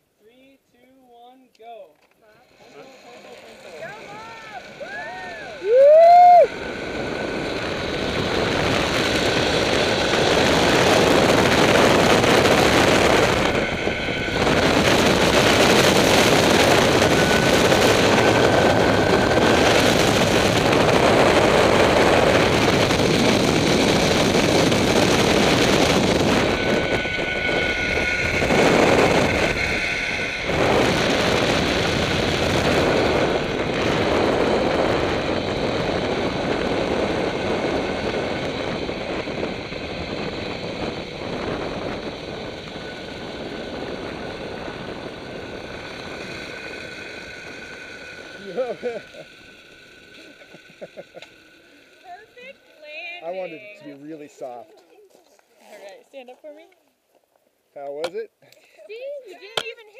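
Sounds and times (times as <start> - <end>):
pulleys running along cable: 2.3 - 55.0
wind rushing over microphone: 3.8 - 50.8.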